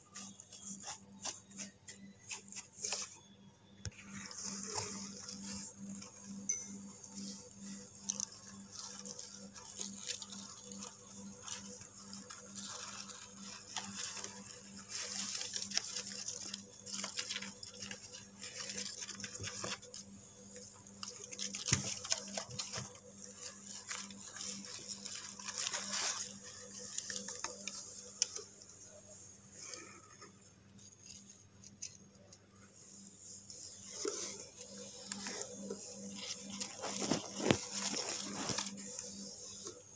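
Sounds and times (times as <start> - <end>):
hand rustling through bedding: 32.7 - 39.9.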